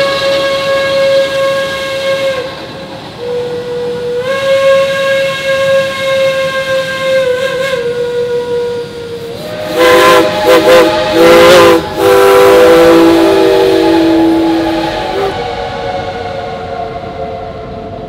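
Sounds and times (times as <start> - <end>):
steam hiss: 0.0 - 18.0
steam locomotive whistle: 0.0 - 18.0.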